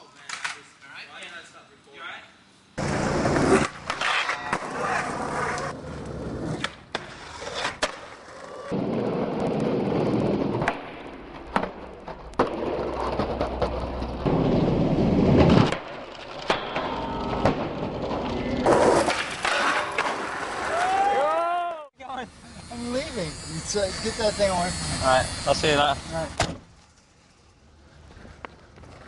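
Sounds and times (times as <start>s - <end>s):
skateboard wheels rolling on concrete: 2.7s - 29.0s
skateboard clacks popping and landing: 10.3s - 20.6s.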